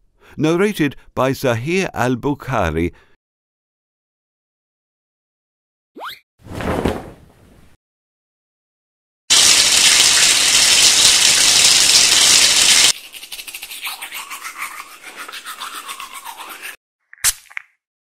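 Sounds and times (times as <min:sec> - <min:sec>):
shower water spraying: 0:09.3 - 0:13.0
toothbrush scrubbing teeth: 0:12.2 - 0:16.8.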